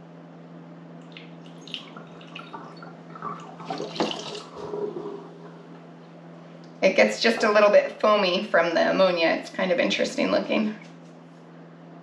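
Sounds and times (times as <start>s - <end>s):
liquid trickling through a funnel: 1.0s - 5.7s.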